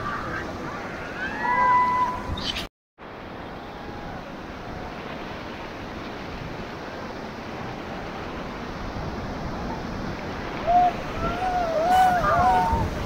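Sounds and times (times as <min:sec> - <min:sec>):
wind on microphone: 0:00.0 - 0:13.0
river water rushing: 0:03.0 - 0:13.0.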